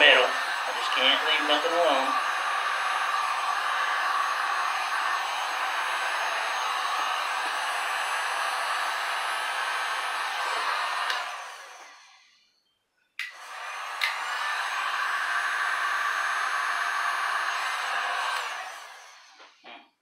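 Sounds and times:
heat gun blowing: 0:00.0 - 0:12.4, 0:13.2 - 0:19.6
heat gun switch click: 0:11.0 - 0:11.3, 0:14.0 - 0:14.2.

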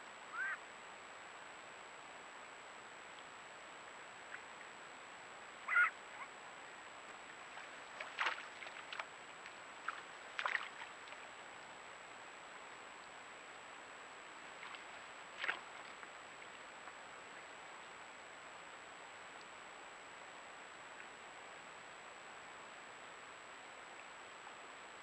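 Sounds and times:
background hiss: 0:00.0 - 0:25.0
bird calls: 0:00.3 - 0:00.6, 0:05.7 - 0:06.3.

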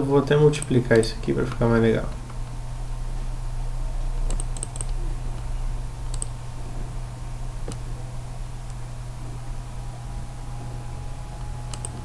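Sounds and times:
low electrical hum: 0:00.0 - 0:12.0
computer keyboard clicks: 0:04.3 - 0:05.0, 0:06.1 - 0:06.4, 0:11.7 - 0:12.0.

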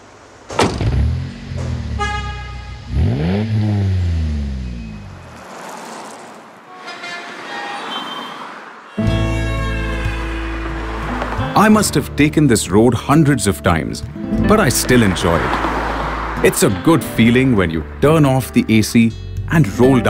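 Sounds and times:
car engines passing: 0:00.0 - 0:19.4
car horn honking: 0:01.9 - 0:03.4, 0:06.6 - 0:11.6
faint horn-like tones: 0:02.0 - 0:03.0, 0:06.6 - 0:11.2.

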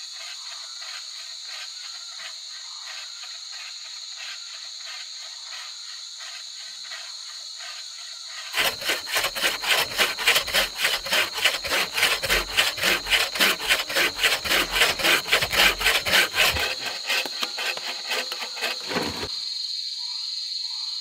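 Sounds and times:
saw cutting through log: 0:08.4 - 0:19.3.

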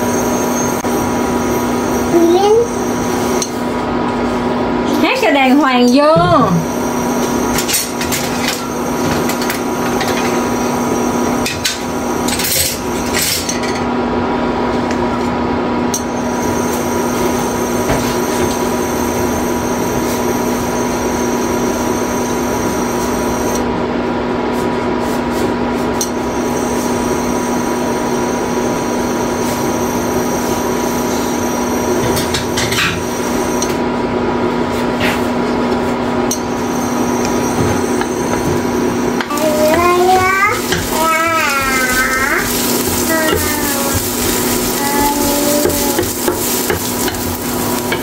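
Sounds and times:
food sizzling: 0:38.6 - 0:48.0.

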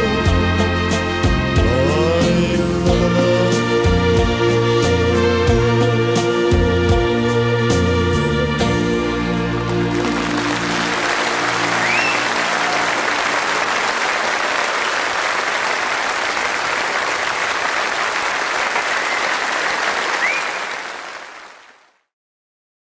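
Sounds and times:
band's held notes: 0:00.0 - 0:14.4
audience applauding: 0:09.6 - 0:22.0.

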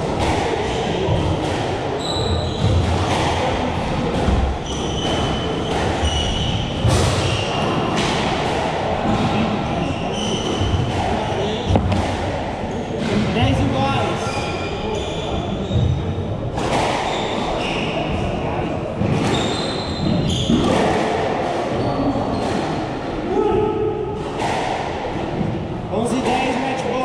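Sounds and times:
racket smacking squash ball: 0:00.0 - 0:13.3, 0:16.5 - 0:17.9, 0:24.2 - 0:25.6
shoes squeaking on wooden floor: 0:02.0 - 0:03.2, 0:04.6 - 0:07.9, 0:19.1 - 0:20.7
ball hitting walls: 0:10.2 - 0:12.4.

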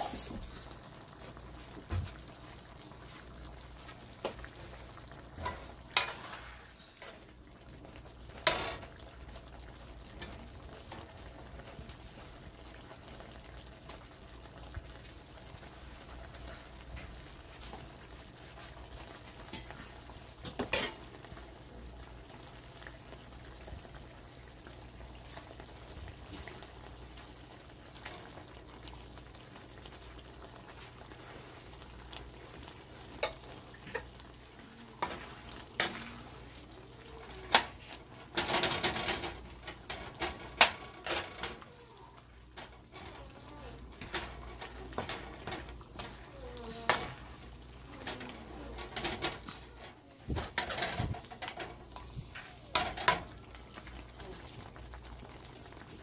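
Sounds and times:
stew bubbling in a wok: 0:00.0 - 0:56.0
metal ladle scraping pan: 0:05.4 - 0:06.8.

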